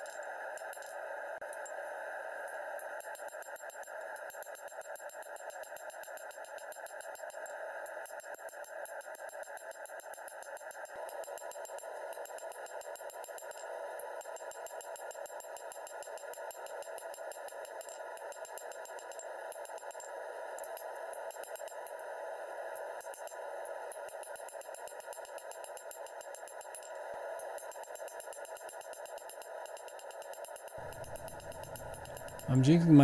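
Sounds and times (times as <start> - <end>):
hammer clicking on anvil: 30.8 - 32.7
steady hiss: 30.8 - 33.0.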